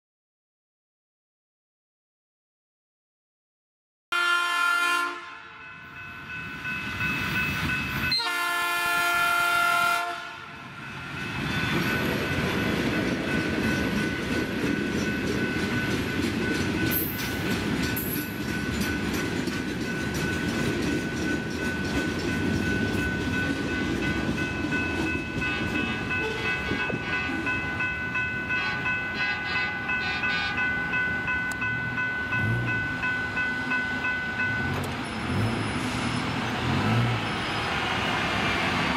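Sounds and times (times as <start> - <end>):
train horn blasts: 4.1 - 5.8, 8.1 - 10.6, 25.4 - 27.5, 28.5 - 30.7
rail cars rumbling past: 4.2 - 38.9.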